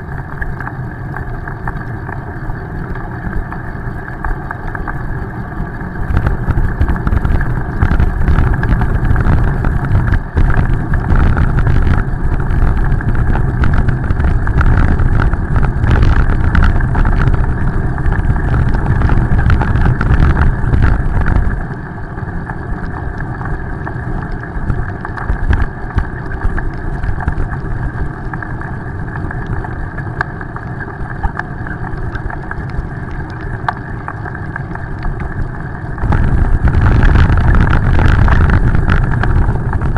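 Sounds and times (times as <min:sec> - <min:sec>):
road noise on wet pavement: 0:00.0 - 0:39.9
wind buffeting microphone: 0:05.8 - 0:29.8, 0:35.1 - 0:39.9.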